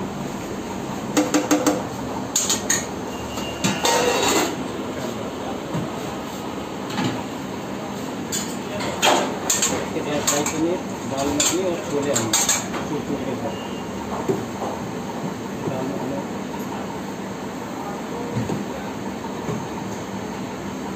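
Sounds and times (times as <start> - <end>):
kitchen background noise: 0.0 - 20.2
metal lids and ladle clattering: 3.7 - 4.6.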